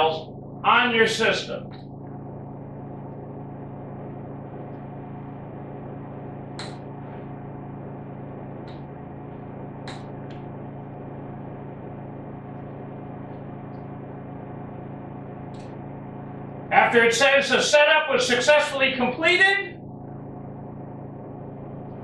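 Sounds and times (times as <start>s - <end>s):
computer electrical hum: 0.0s - 22.0s
mouse clicks: 6.6s - 6.8s, 9.8s - 10.4s.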